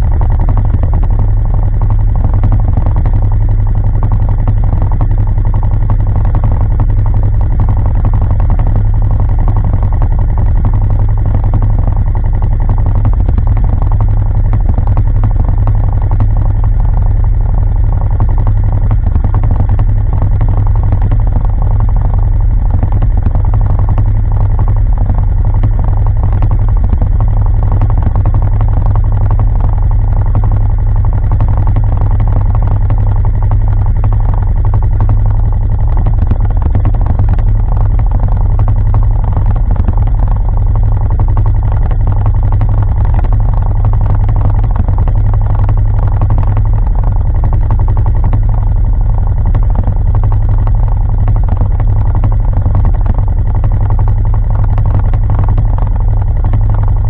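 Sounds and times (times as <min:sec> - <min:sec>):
engine idling low rumble: 0:00.0 - 0:57.0.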